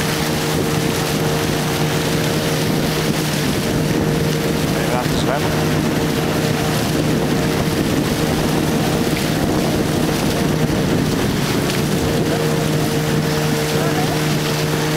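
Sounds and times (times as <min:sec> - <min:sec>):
boat engine running: 0:00.0 - 0:14.9
water rushing past hull: 0:00.0 - 0:14.9
wind noise on microphone: 0:00.0 - 0:14.9.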